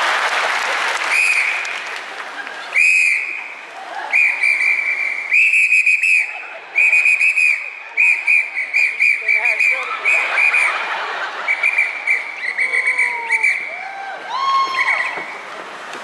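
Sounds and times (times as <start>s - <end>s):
shrill whistle blasts: 1.1s - 1.6s, 2.8s - 3.5s, 4.1s - 10.7s, 11.5s - 13.7s
faint audience murmur: 2.0s - 16.0s.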